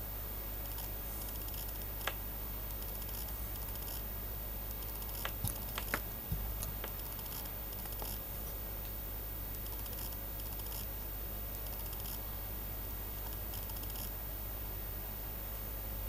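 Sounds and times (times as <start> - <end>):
electrical hum and hiss: 0.0 - 16.0
computer mouse clicks: 0.6 - 4.0, 4.7 - 6.0, 6.6 - 10.9, 11.6 - 12.2, 13.2 - 14.1.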